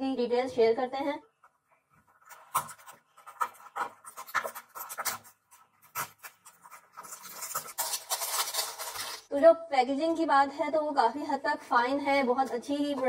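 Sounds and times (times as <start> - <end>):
cardboard flap rustling scrape: 2.2 - 9.3.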